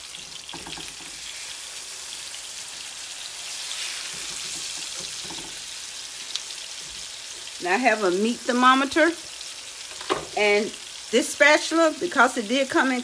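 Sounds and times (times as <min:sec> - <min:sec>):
chicken sizzling in oil: 0:00.0 - 0:13.0.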